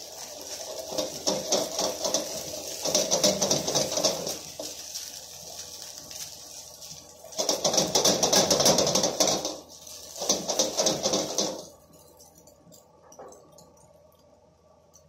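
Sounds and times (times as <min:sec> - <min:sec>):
spatula scraping a wok: 0:00.0 - 0:11.8
hot pan sizzling: 0:00.0 - 0:15.0.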